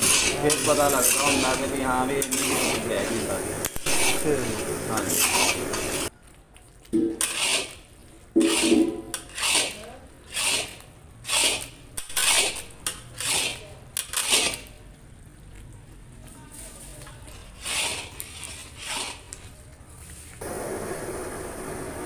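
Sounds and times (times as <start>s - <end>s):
metal spatula scraping a pan: 0.0s - 6.1s, 7.2s - 14.8s, 17.2s - 19.5s.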